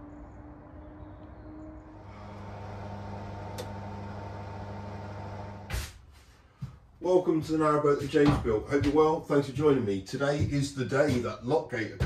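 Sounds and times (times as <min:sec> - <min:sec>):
steady machine hum: 0:02.0 - 0:05.7.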